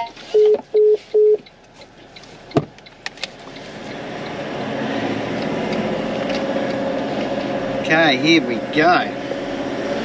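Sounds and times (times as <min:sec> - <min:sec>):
vehicle engine pulling away: 0:03.3 - 0:10.0.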